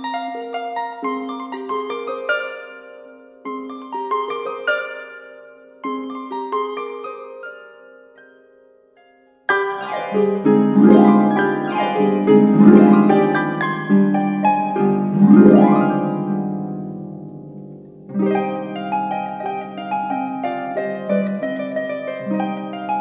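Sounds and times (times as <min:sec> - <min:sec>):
harp plucked chords: 0:09.5 - 0:19.9.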